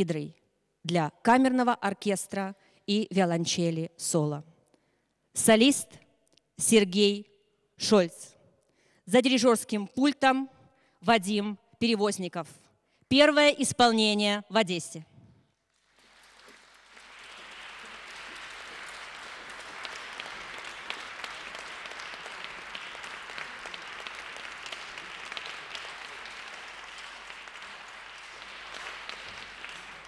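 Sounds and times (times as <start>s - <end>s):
audience applause: 15.8s - 30.0s.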